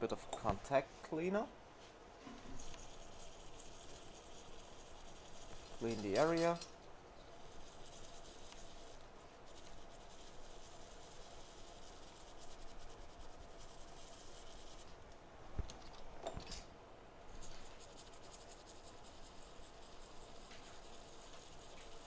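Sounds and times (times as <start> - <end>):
tool scrubbing circuit board: 2.6 - 6.6, 7.3 - 14.9, 17.3 - 22.0.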